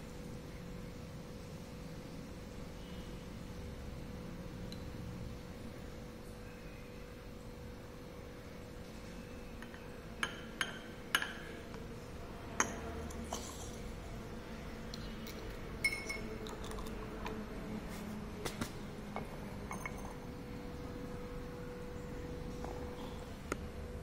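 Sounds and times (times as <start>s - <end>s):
glassware clinking: 9.6s - 11.5s, 12.6s - 13.8s, 15.8s - 16.9s, 19.2s - 20.2s
light taps on glassware: 9.6s - 11.5s
liquid pouring: 14.9s - 17.4s.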